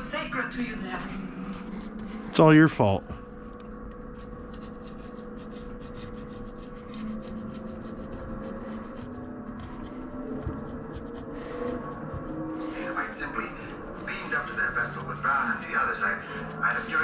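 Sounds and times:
steady background hum: 0.0s - 17.0s
razor blade scraping: 4.1s - 17.0s.

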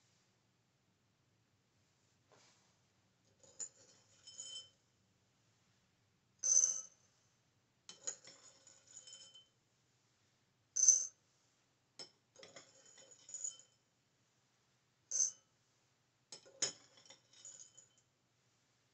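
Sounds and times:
metal spoon clinking ceramic bowl: 16.4s - 18.0s.

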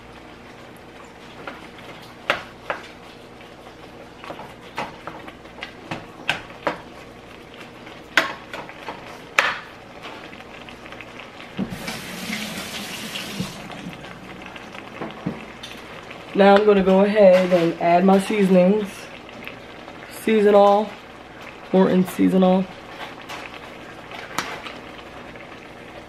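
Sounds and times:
tap running: 11.5s - 16.6s.

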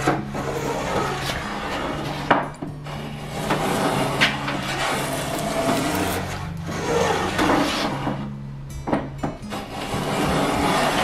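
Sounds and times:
plane shaving wood: 0.0s - 8.3s, 9.5s - 11.0s.

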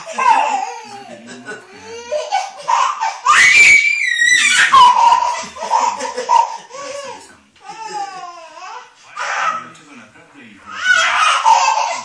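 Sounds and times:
toddler laughing: 0.0s - 3.3s, 4.4s - 9.6s, 10.7s - 12.0s
toddler shrieking: 1.8s - 9.6s, 10.7s - 12.0s.

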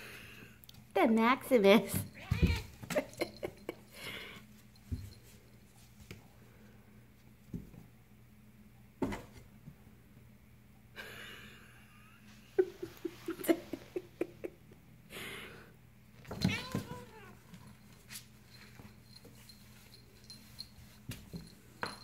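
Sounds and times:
cats thumping on cardboard: 2.2s - 3.1s, 16.2s - 17.2s.

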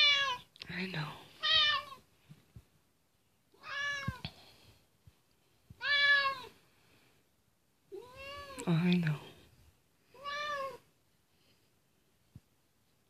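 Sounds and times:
cat meowing: 0.0s - 0.5s, 1.4s - 2.0s, 3.5s - 4.2s, 5.8s - 6.6s, 7.9s - 8.6s, 10.1s - 10.8s.

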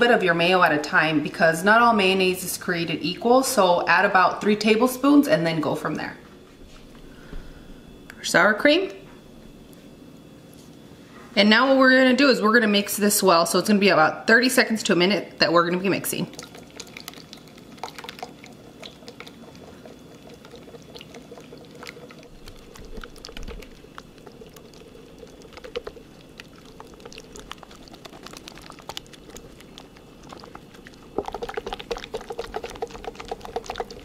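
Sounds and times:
whisk beating liquid in glass bowl: 16.2s - 34.0s.

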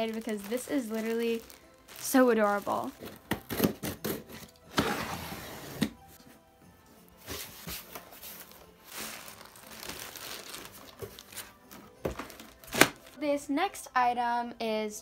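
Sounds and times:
plastic bag crinkling: 0.0s - 3.4s, 8.3s - 13.2s.

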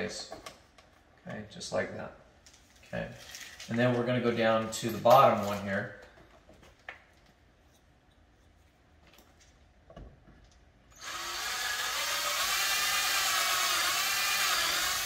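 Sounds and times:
cordless drill boring: 10.9s - 15.0s.

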